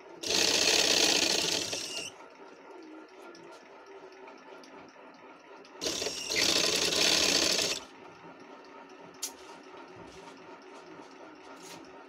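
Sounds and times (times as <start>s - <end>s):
sewing machine stitching: 0.2s - 2.2s, 5.8s - 7.9s.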